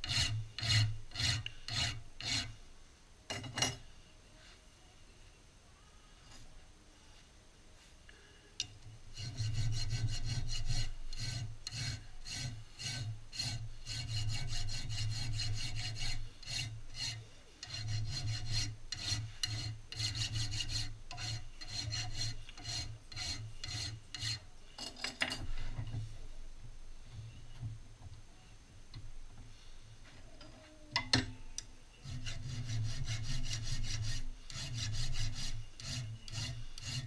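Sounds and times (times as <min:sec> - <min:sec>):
hand file rasping on steel: 0:00.0 - 0:02.6, 0:09.1 - 0:24.9, 0:32.0 - 0:37.0.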